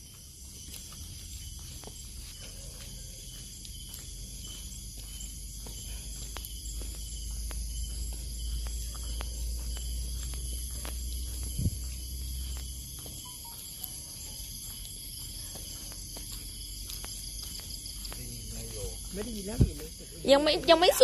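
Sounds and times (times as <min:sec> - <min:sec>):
crickets and insects trilling: 0:00.0 - 0:21.0.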